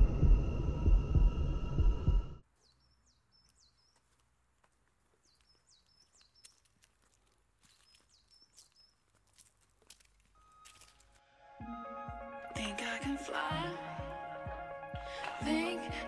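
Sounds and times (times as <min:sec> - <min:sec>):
footsteps on a path: 0:03.3 - 0:11.3.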